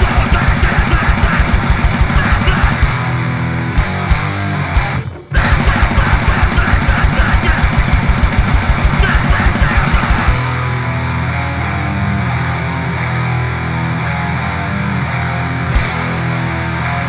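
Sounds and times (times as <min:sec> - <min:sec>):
distorted guitar and bass note ringing: 0:00.0 - 0:17.0
punk band playing: 0:00.0 - 0:17.0.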